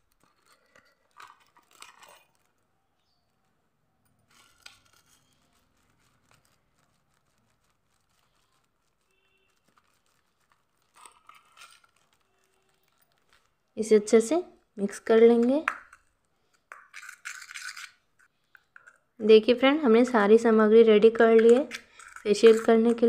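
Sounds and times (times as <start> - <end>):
plastic packet crinkling: 0.0 - 14.1.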